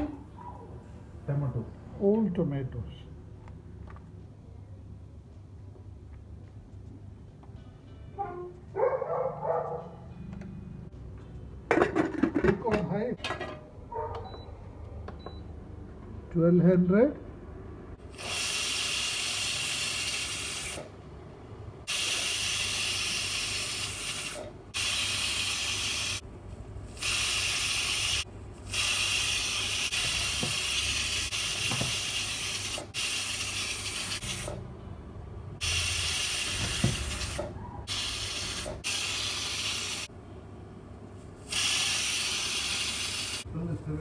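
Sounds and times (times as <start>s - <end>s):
steam hissing from pressure cooker: 18.1s - 20.9s, 21.9s - 26.2s, 26.9s - 34.5s, 35.6s - 40.1s, 41.4s - 43.4s.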